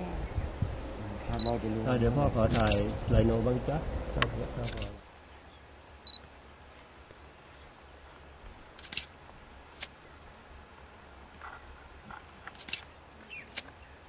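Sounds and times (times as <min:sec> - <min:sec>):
camera shutter clicking: 0:02.5 - 0:02.8, 0:08.8 - 0:09.1, 0:12.6 - 0:12.9.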